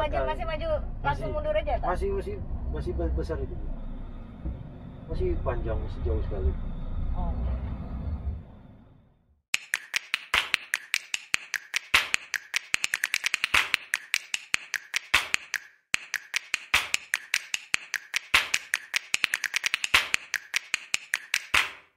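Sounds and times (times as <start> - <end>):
sharp snaps and taps: 9.5 - 21.9.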